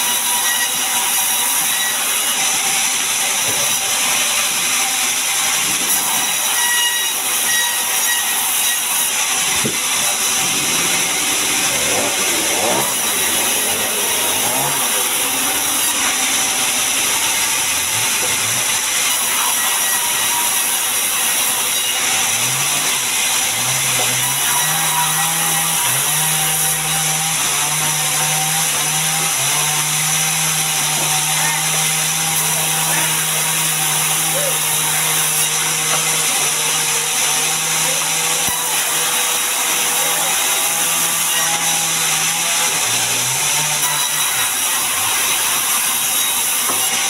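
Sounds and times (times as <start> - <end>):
band saw cutting wood: 0.0 - 47.0
low hum: 9.6 - 18.0.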